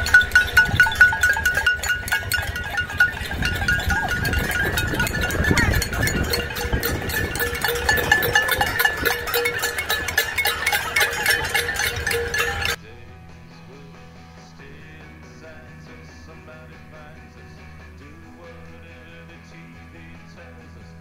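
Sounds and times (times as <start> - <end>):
pots and pans banged with spoons: 0.0 - 12.8
steady ringing tones: 0.0 - 12.8.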